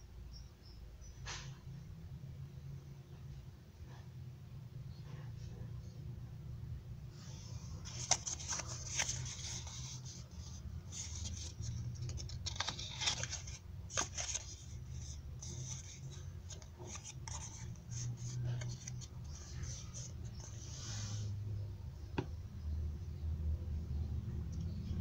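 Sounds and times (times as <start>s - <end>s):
paper rustling and crinkling: 7.8s - 20.6s.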